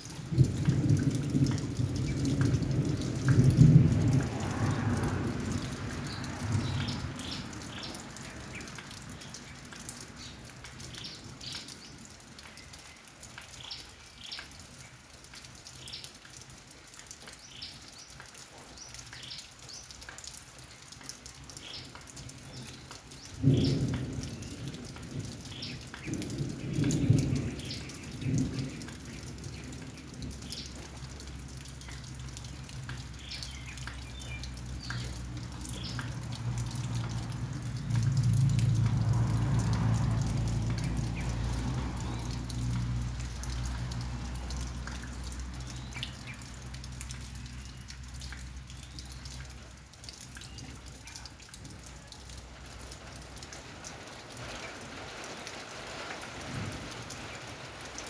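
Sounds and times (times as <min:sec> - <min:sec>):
raindrops and drips ticking: 0:00.0 - 0:58.0
thunder rumbling: 0:00.2 - 0:08.2, 0:23.4 - 0:33.2, 0:34.4 - 0:46.5, 0:56.4 - 0:57.7.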